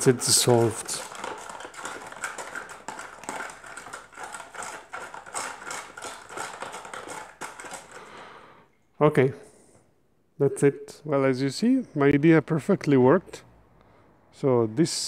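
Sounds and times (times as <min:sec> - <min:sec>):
liquid swishing: 0:00.0 - 0:08.2.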